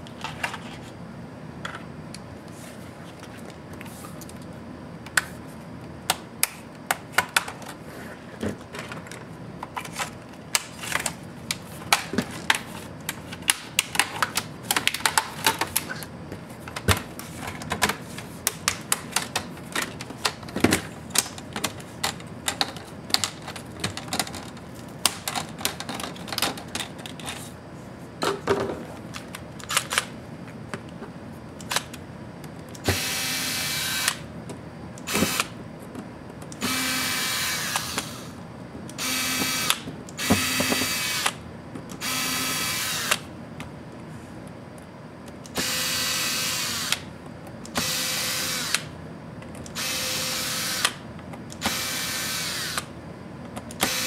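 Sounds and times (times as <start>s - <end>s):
cordless electric screwdriver running: 32.8s - 34.2s, 36.6s - 38.2s, 39.0s - 41.4s, 42.0s - 43.2s, 45.6s - 47.0s, 47.8s - 48.9s, 49.8s - 51.0s, 51.6s - 52.9s.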